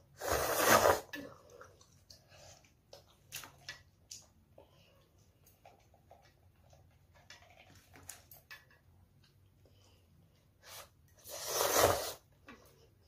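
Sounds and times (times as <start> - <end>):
child slurping noodles: 0.2 - 1.3, 11.2 - 12.3.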